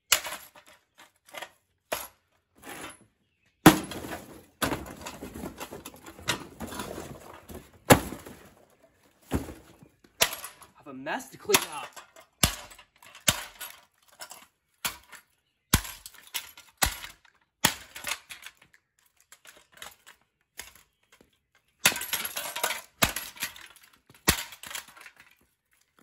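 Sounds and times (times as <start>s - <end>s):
metal housing smashed on concrete: 3.6s - 8.6s.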